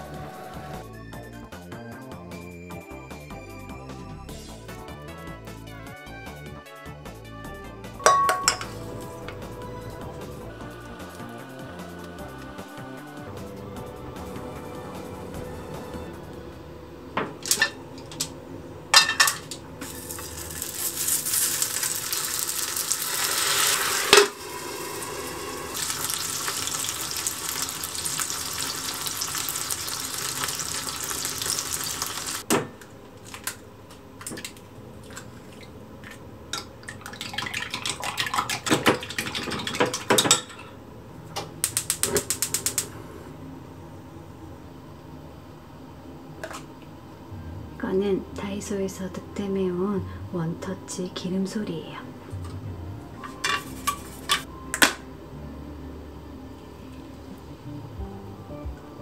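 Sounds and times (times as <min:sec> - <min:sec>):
utensils knocking against pan: 0:08.0 - 0:08.8
dumplings sizzling in oil: 0:17.4 - 0:32.6.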